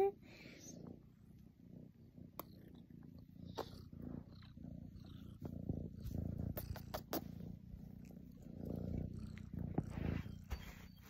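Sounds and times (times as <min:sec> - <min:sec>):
cat purring: 0:00.0 - 0:11.0
fur brushing microphone: 0:09.7 - 0:11.0.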